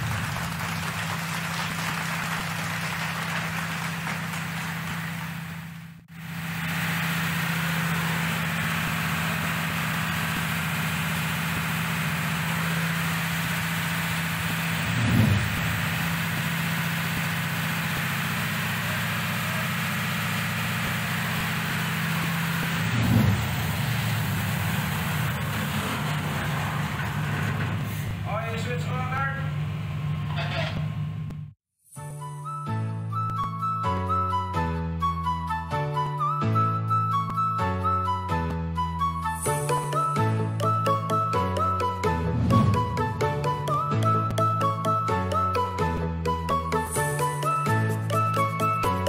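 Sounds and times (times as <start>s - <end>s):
diesel generator humming: 0.0s - 31.6s, 37.1s - 49.0s
low bumps: 42.0s - 44.4s.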